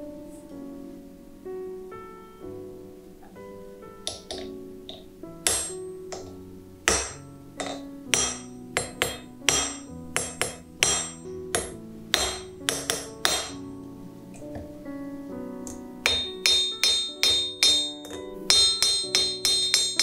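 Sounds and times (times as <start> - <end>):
background piano music: 0.0 - 20.0
hammer striking chisel on metal: 4.0 - 13.6, 15.7 - 20.0.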